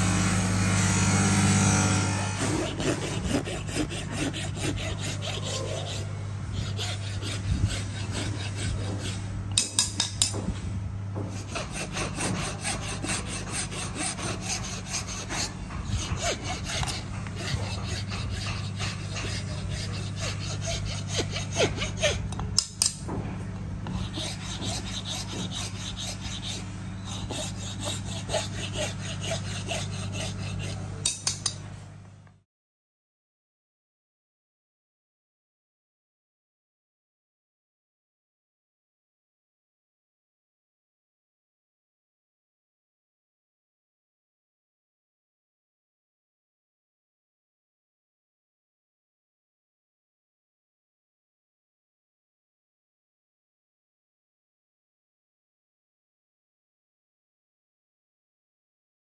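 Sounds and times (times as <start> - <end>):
steady low hum: 0.0 - 32.4
file rasping on steel blade: 0.2 - 10.4, 11.3 - 23.0, 23.9 - 31.7.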